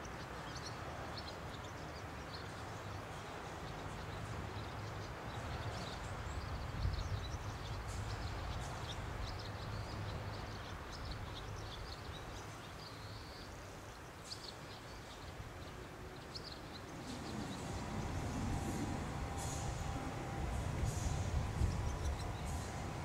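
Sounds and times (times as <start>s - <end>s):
small birds chirping: 0.0s - 23.0s
faint low hum: 16.2s - 23.0s
steady low rumble: 16.7s - 23.0s.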